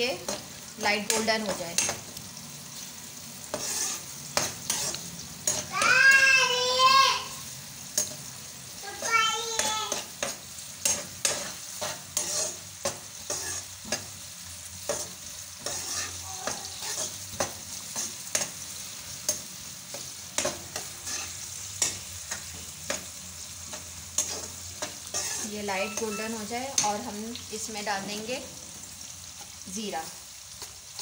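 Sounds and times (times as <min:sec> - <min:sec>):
onions sizzling in oil: 0:00.0 - 0:31.0
spatula scraping pan: 0:03.4 - 0:06.5, 0:08.9 - 0:27.4
high squeals: 0:25.4 - 0:26.7.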